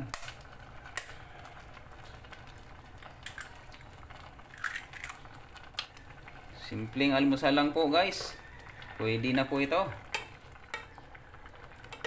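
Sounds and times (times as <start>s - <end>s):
egg cracking on metal pot: 0.0s - 3.9s, 4.5s - 6.1s, 10.1s - 12.0s
soup simmering: 0.0s - 12.0s.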